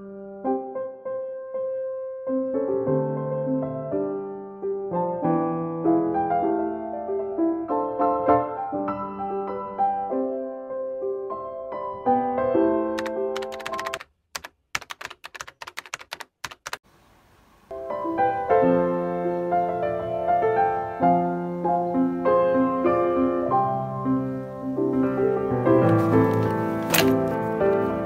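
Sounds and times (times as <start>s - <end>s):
gentle piano music: 0.0s - 14.0s, 17.7s - 28.0s
keyboard typing clicks: 13.0s - 16.8s.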